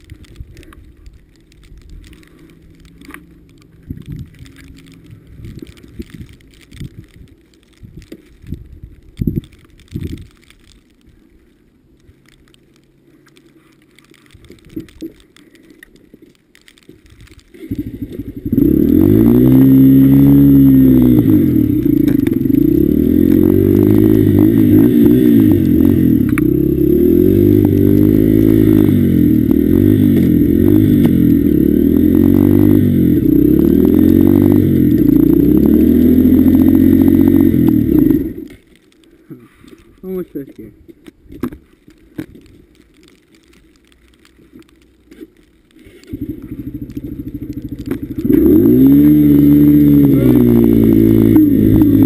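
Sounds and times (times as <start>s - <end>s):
dirt bike engine revving: 17.6s - 38.5s, 46.1s - 52.0s.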